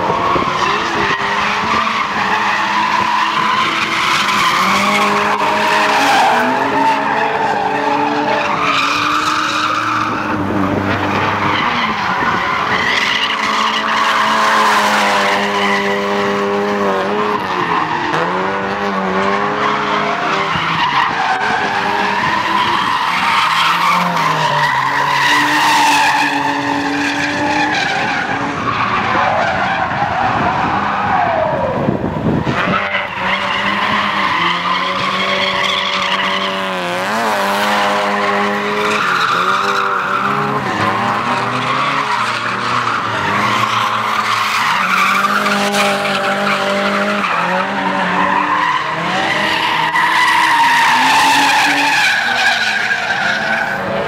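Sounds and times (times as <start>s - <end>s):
car engines revving: 0.0s - 54.0s
tyre screech: 0.1s - 16.5s, 32.5s - 54.0s.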